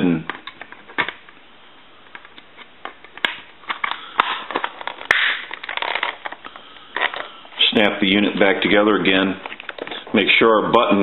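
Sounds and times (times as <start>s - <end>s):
plastic clicks: 0.2s - 1.4s, 2.0s - 7.3s
plastic scraping: 2.1s - 10.3s.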